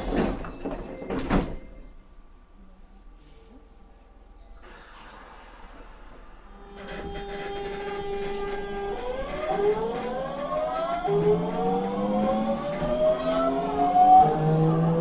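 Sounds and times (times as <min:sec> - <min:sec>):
train inverter whining: 0:05.6 - 0:15.0.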